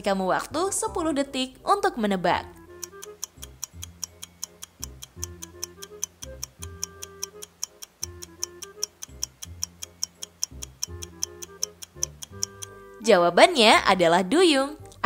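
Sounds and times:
simple backing tune: 0.0 - 15.0
clock-like ticking: 2.6 - 13.0.

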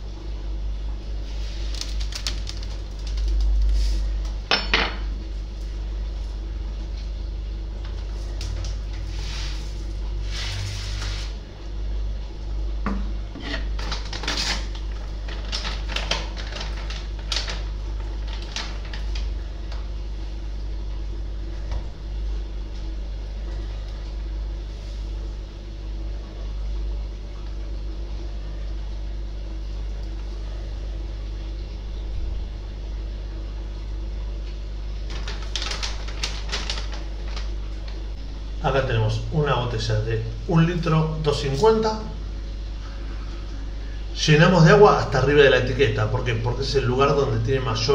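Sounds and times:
steady low hum: 0.0 - 47.9
foil bag crinkling: 1.3 - 4.4, 13.6 - 19.8, 35.0 - 38.2.

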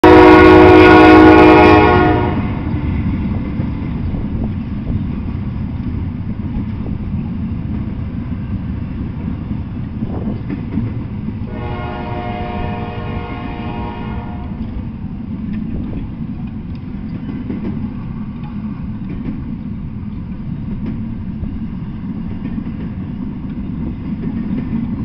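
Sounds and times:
train horn: 0.0 - 2.7, 11.4 - 14.8
train wheels rumbling on rail: 0.0 - 25.0.

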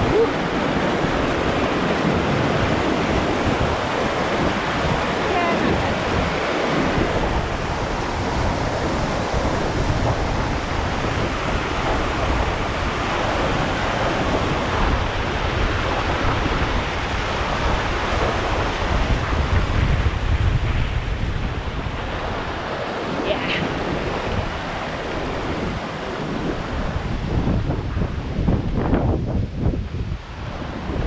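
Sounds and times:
mountain stream rushing: 0.0 - 31.0.

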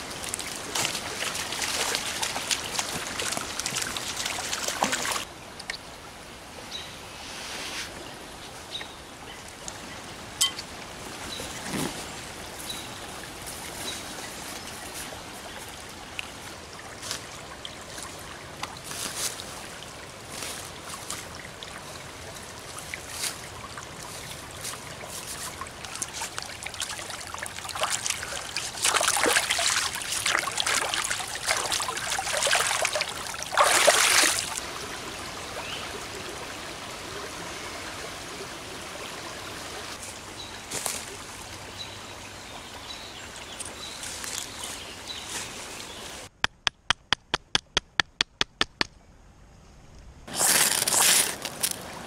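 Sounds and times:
splashing in water: 0.0 - 5.3, 22.7 - 34.6
creek trickling over rocks: 0.0 - 6.7, 7.9 - 46.3, 50.3 - 52.0.

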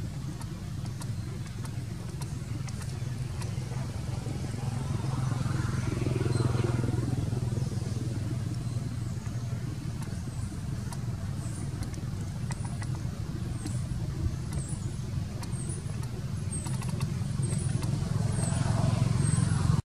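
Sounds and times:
low mechanical rumble: 0.0 - 19.8.

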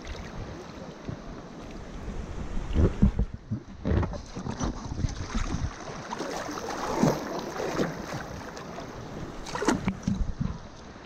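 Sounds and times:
river water rushing and splashing: 0.0 - 11.0
wind rumbling on microphone: 0.0 - 11.0
sharp water splash: 4.2 - 10.2.

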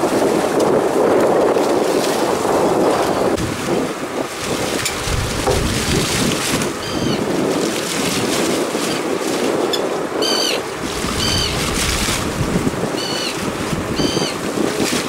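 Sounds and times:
sea washing along boat hull: 0.0 - 15.0
wind buffeting microphone: 0.0 - 15.0.

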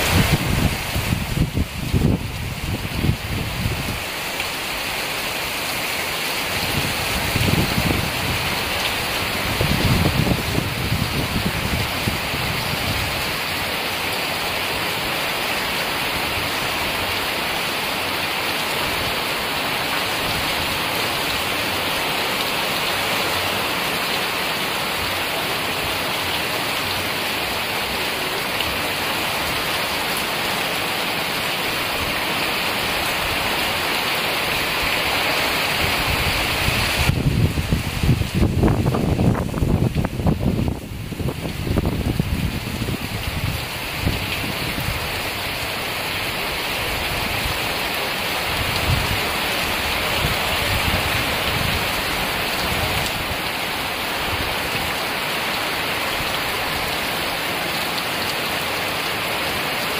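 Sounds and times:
strong wind gusts: 0.0 - 4.3, 6.4 - 13.8, 31.6 - 57.0
heavy rain pouring: 0.0 - 59.9.

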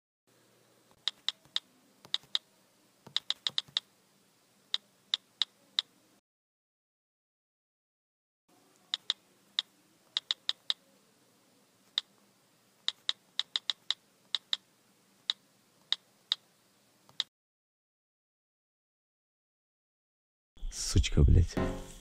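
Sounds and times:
keys clicking in typing: 1.0 - 2.4, 3.1 - 3.9, 8.9 - 10.8, 12.9 - 14.6, 17.1 - 17.3.

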